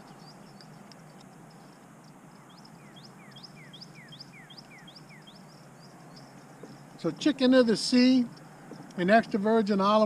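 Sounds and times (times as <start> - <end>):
faint high chirping: 0.0 - 7.2
low outdoor background: 0.0 - 10.0.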